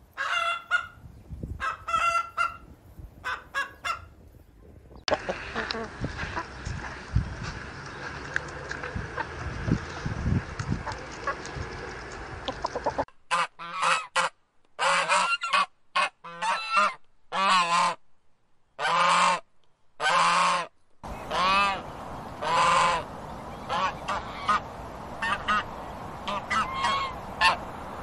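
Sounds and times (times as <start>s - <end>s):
swan honking: 0.2s - 1.0s, 1.6s - 4.1s, 5.1s - 6.7s, 10.8s - 18.0s, 20.0s - 27.8s
chickens clucking: 1.6s - 4.1s, 4.9s - 13.1s, 21.1s - 27.6s
steady background hiss: 21.0s - 28.0s.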